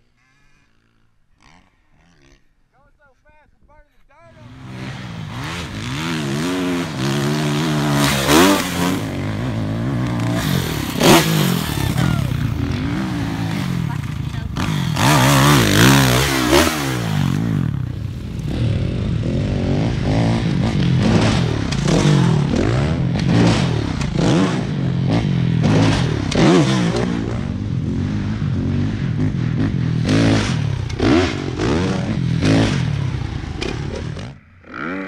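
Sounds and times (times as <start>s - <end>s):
dirt bike engine revving: 0.0s - 2.7s, 4.3s - 35.0s.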